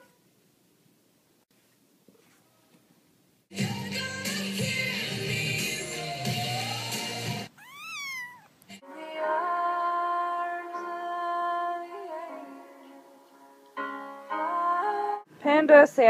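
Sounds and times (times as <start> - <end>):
music with woman singing: 3.5 - 7.5, 8.8 - 13.6, 14.2 - 15.3
cat meowing: 7.5 - 8.6.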